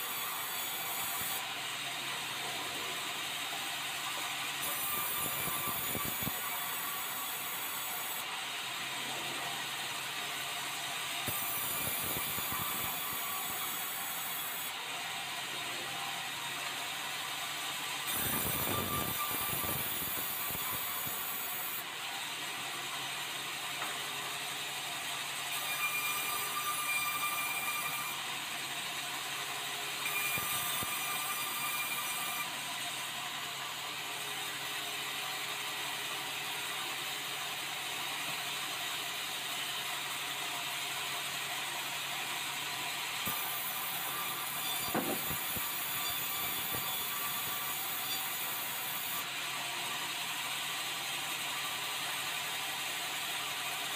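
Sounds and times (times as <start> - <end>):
high saw whine: 0.0 - 23.2, 23.8 - 28.3, 29.5 - 32.6, 43.2 - 49.3
band saw cutting wood: 0.0 - 28.4, 29.2 - 33.4, 43.0 - 49.4.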